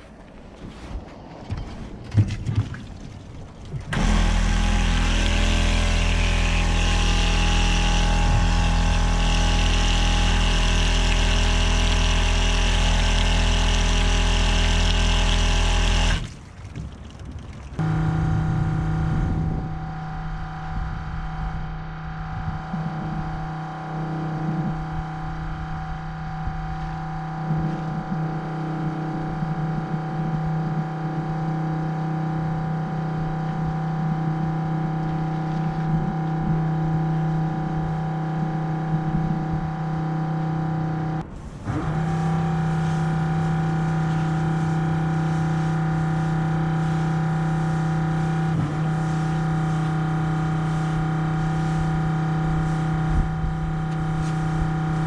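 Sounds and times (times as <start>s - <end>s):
pressure washer engine running: 3.9s - 16.4s, 41.4s - 55.0s
wand spraying: 42.1s - 53.1s.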